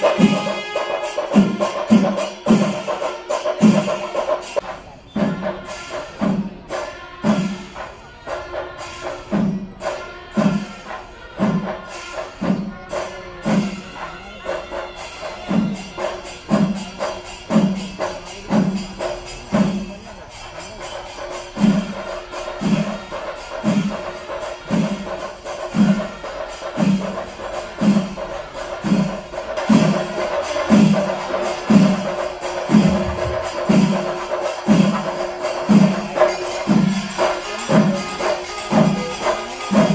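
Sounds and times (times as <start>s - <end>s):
wind instrument held tone: 0.0s - 17.4s, 20.1s - 39.9s
drums beating slowly: 0.0s - 39.9s
small hand cymbals ringing: 8.4s - 39.9s.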